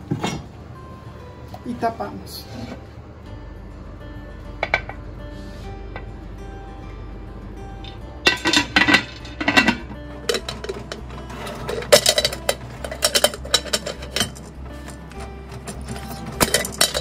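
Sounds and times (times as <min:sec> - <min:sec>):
pressure cooker lid clanking: 0:08.3 - 0:14.5
metal clicks and clinks: 0:08.3 - 0:17.0.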